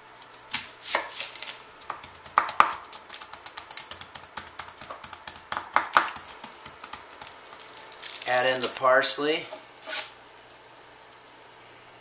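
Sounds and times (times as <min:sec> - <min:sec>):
knife tapping on cutting board: 0:01.9 - 0:02.8, 0:03.4 - 0:07.0.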